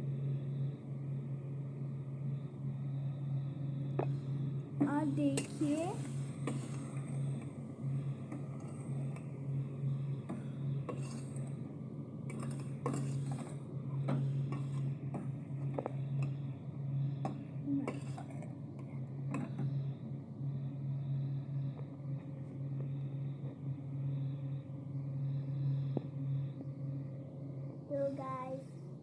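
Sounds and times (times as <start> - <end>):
low hum: 0.0 - 29.0
metal ladle scraping a pot: 10.9 - 11.5.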